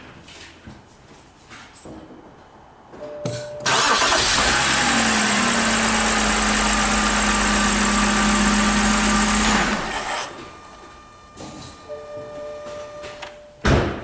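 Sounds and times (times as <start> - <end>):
car engine starting and running: 3.6 - 11.2.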